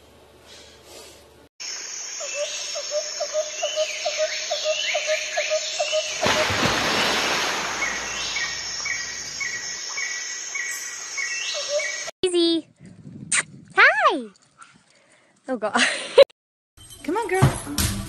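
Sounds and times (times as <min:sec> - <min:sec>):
birds chirping: 0:01.8 - 0:12.1.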